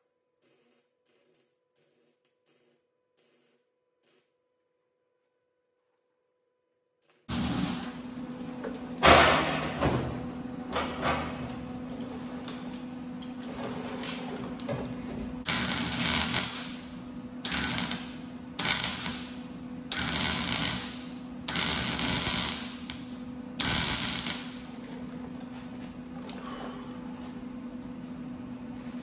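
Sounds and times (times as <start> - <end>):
welding arc crackling: 0.4 - 4.4, 7.0 - 8.2, 15.5 - 24.7
steady hum: 7.1 - 13.4.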